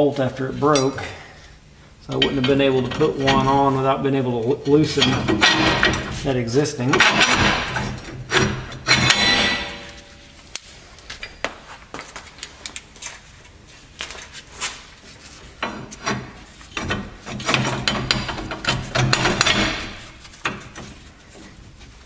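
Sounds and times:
metal parts clinking and knocking: 8.8 - 10.9, 14.0 - 14.4.

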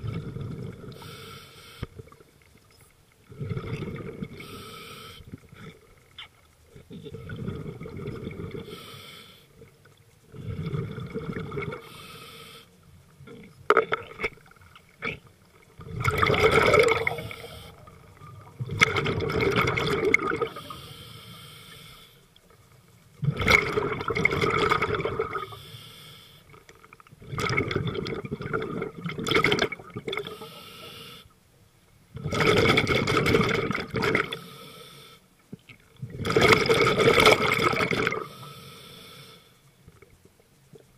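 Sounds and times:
regulator hiss on inhale: 0.8 - 2.2, 4.2 - 5.8, 8.4 - 9.7, 11.7 - 13.1, 17.0 - 18.3, 20.4 - 22.5, 25.3 - 26.7, 30.2 - 31.4, 34.2 - 35.5, 38.1 - 39.8
gurgling exhaust bubbles: 15.8 - 20.6, 23.2 - 25.4.

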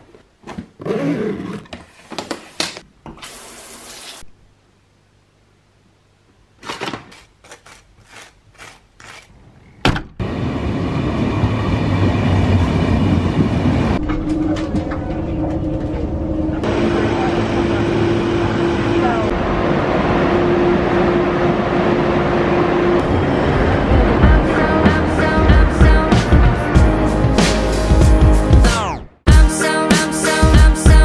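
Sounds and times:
knife scraping butter on toast: 7.4 - 9.3
train cabin rumble: 11.2 - 20.0, 23.0 - 26.7.

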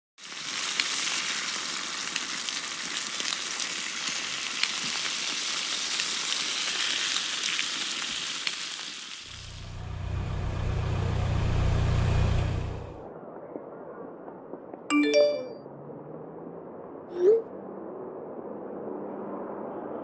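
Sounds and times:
food sizzling in a hot pan: 0.2 - 9.7
car engine drone inside cabin: 9.3 - 13.1.

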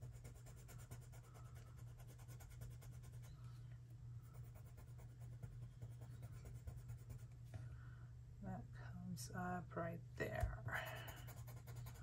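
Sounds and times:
colored pencil scratching on paper: 0.0 - 3.4, 4.2 - 7.3, 10.9 - 12.0
low steady hum: 0.0 - 12.0.

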